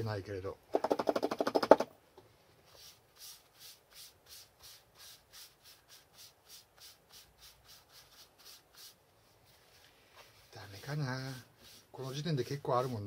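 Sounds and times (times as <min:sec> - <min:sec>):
cloth wiping leather: 0:02.7 - 0:13.0.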